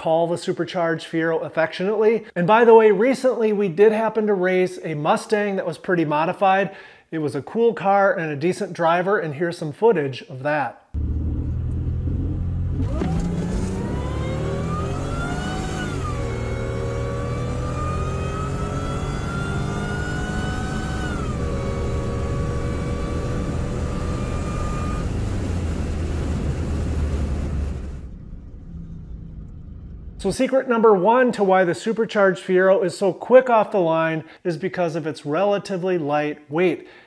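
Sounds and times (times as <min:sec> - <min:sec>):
car engine revving up: 0:11.0 - 0:30.4.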